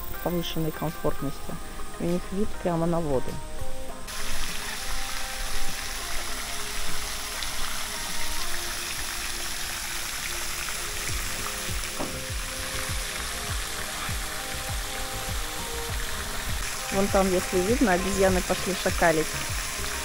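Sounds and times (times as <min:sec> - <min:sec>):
fountain splashing on pond: 0:04.1 - 0:20.0.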